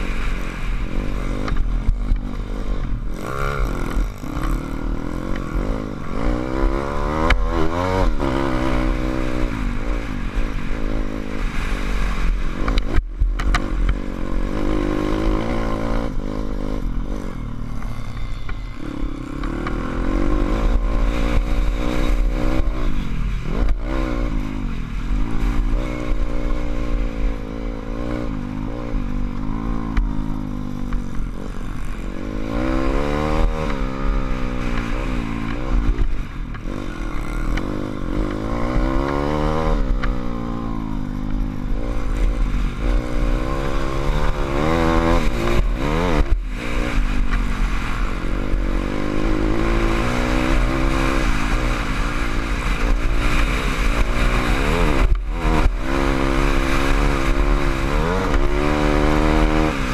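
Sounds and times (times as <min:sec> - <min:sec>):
motorbike engine revving: 0:00.0 - 0:59.9
wind rumble on microphone: 0:00.0 - 0:59.9.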